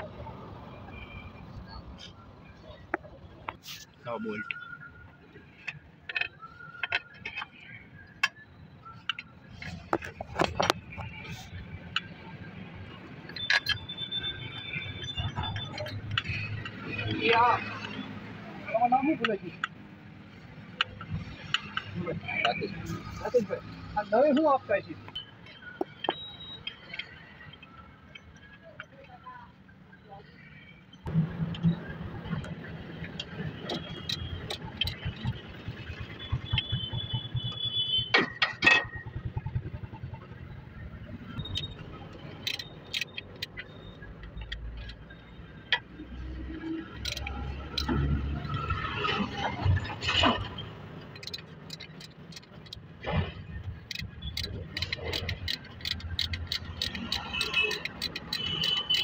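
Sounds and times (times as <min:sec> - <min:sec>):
socket ratchet clicking: 0:41.4 - 0:45.0, 0:46.9 - 0:48.0, 0:51.0 - 0:52.9, 0:53.7 - 0:59.0.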